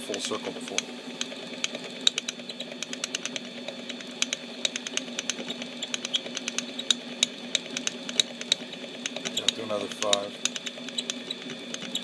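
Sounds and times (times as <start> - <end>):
lathe motor hum: 0.0 - 12.0.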